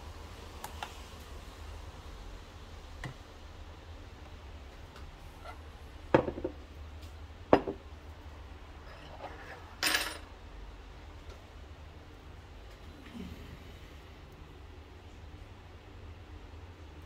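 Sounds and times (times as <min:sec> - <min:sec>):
glass cups knocking on countertop: 0:06.1 - 0:06.6, 0:07.5 - 0:07.8
kitchen items scraping clatter: 0:08.8 - 0:10.2.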